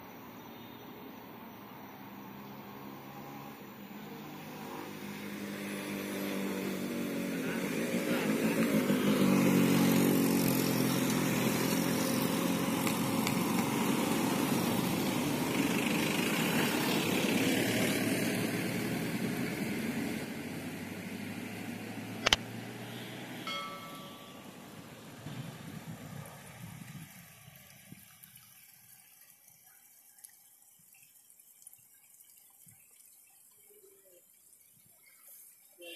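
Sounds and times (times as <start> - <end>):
motorcycle engine: 4.5 - 25.6.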